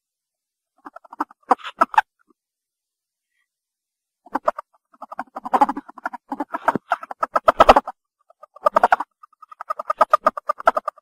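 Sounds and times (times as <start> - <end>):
ferret clucking: 0.8 - 2.1, 4.2 - 11.0.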